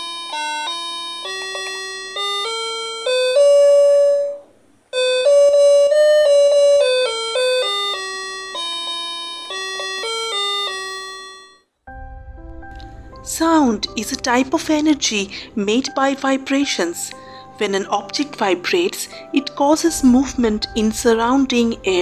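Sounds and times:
toy keyboard melody: 0:00.0 - 0:11.7.

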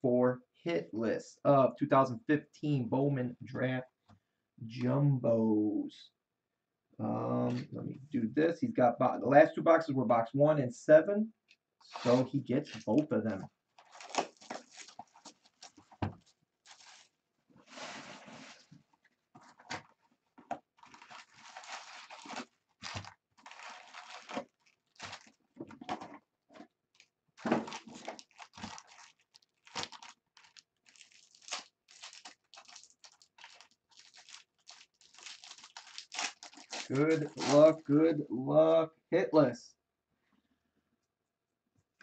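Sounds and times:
cardboard box tearing: 0:13.8 - 0:15.8
foil packs rustling and crinkling: 0:13.8 - 0:18.8, 0:20.8 - 0:25.4, 0:27.0 - 0:37.8.

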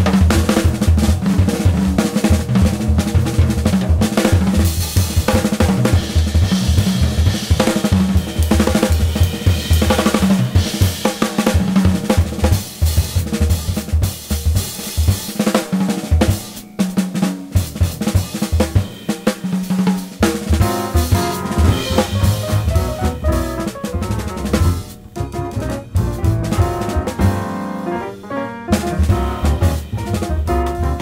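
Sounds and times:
drum kit beat: 0:00.0 - 0:31.0
bass line: 0:20.6 - 0:31.0.

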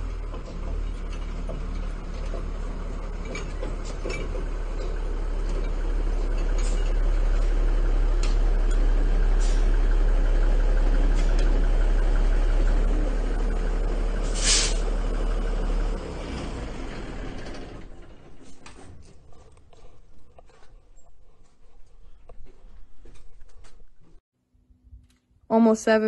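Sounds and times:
diesel engine idling: 0:00.0 - 0:20.4
short sharp hiss: 0:14.3 - 0:14.8.

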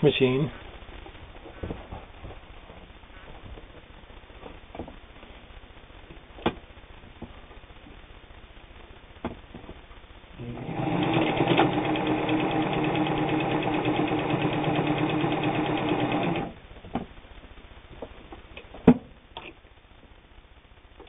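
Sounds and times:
sewing machine running: 0:10.4 - 0:16.6.

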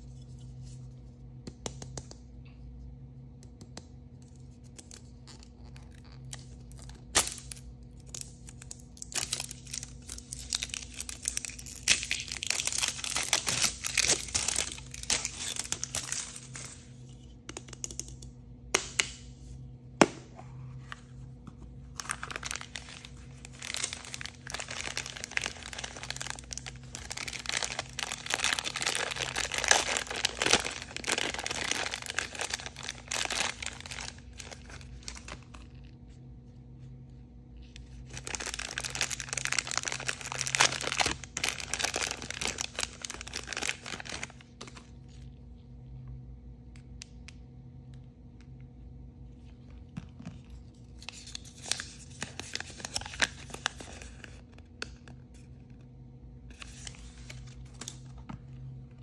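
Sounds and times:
plastic wrapping tearing: 0:04.8 - 0:16.8, 0:21.9 - 0:35.8, 0:38.0 - 0:44.8
plastic bag crinkling: 0:08.5 - 0:16.8, 0:21.8 - 0:35.8, 0:37.9 - 0:44.8.

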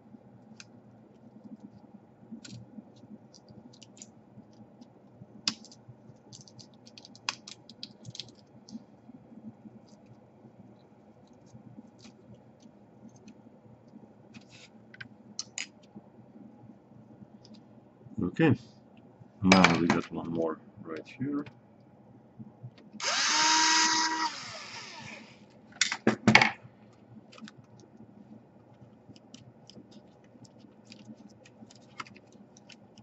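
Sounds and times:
fingers clicking laptop parts: 0:00.5 - 0:08.8, 0:29.1 - 0:33.0.

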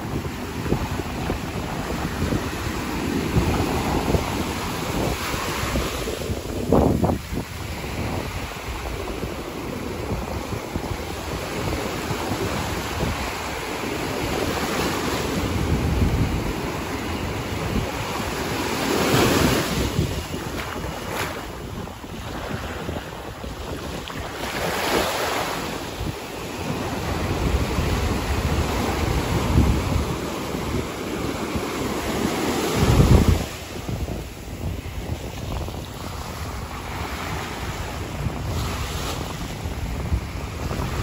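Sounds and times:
small waves breaking on sand: 0:00.0 - 0:41.0
wind buffeting microphone: 0:00.0 - 0:41.0.

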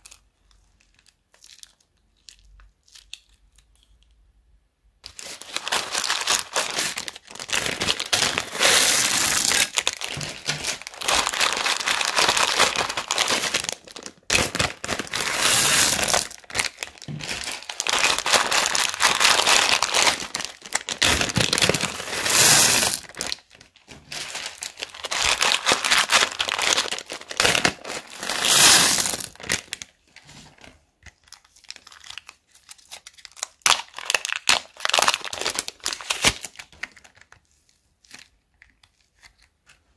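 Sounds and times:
plastic bags crinkling: 0:05.0 - 0:30.0, 0:30.6 - 0:37.4
plastic beads rattling and spilling: 0:05.1 - 0:29.7.

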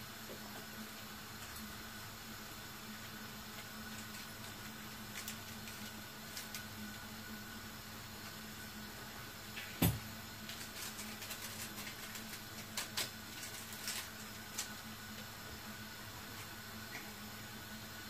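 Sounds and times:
packet rustling: 0:03.8 - 0:06.7, 0:10.4 - 0:14.8.

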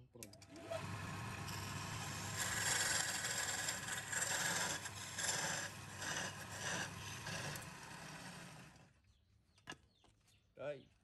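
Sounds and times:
wood lathe motor hum: 0:00.5 - 0:09.0
hissing scrape of tool on wood: 0:00.7 - 0:09.0.

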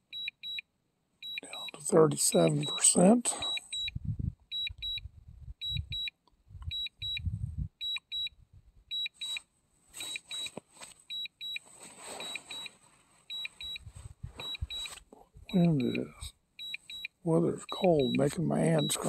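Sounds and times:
remote controller double beeps: 0:01.2 - 0:06.1, 0:06.7 - 0:08.3, 0:08.9 - 0:09.4, 0:10.0 - 0:11.6, 0:12.2 - 0:12.7, 0:13.3 - 0:13.8, 0:14.4 - 0:14.9, 0:15.5 - 0:19.0
wind buffeting microphone: 0:03.8 - 0:07.8, 0:13.8 - 0:14.8.

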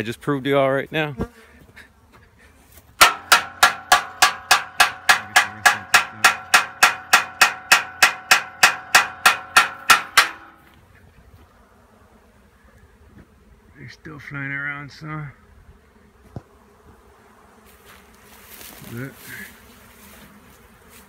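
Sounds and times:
metal object clanging rhythmically: 0:03.0 - 0:10.6.

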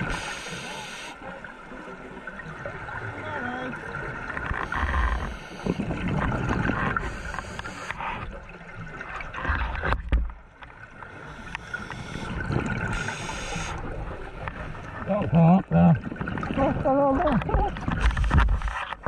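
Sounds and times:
hissing regulator inhalations: 0:00.0 - 0:01.2, 0:04.6 - 0:05.9, 0:06.9 - 0:08.2, 0:11.1 - 0:13.9
gurgling exhaled bubbles: 0:03.7 - 0:10.0, 0:11.2 - 0:18.5.

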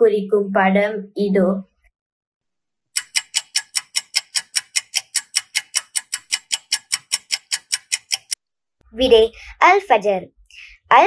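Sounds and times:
countdown timer ticking: 0:03.0 - 0:08.4.

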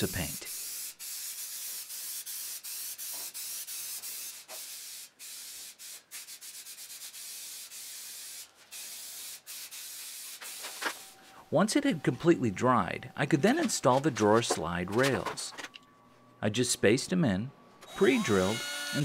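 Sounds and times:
spray-paint can hissing: 0:00.5 - 0:11.0.

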